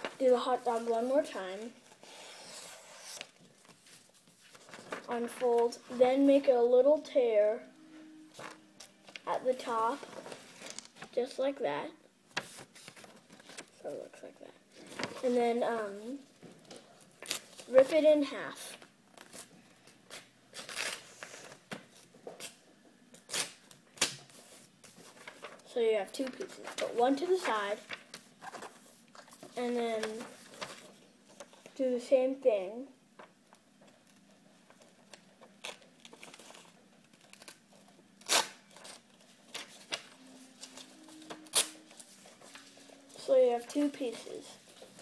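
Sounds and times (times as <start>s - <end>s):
paper rustling and crinkling: 0.0s - 6.0s, 8.4s - 11.2s, 12.3s - 14.0s, 14.8s - 15.4s, 24.0s - 31.8s, 33.2s - 45.0s
paper tearing: 2.0s - 3.3s, 41.2s - 42.7s.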